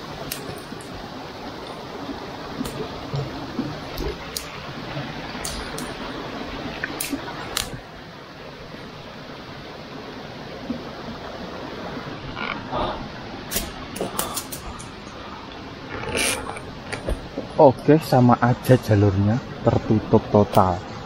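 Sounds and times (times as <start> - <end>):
steady hiss: 0.0 - 21.0
twigs snapping: 4.0 - 4.6, 6.8 - 7.8, 13.5 - 15.0.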